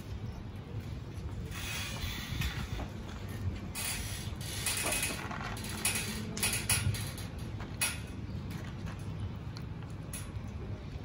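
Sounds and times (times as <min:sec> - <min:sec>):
cats crunching kibble: 0:08.4 - 0:11.0.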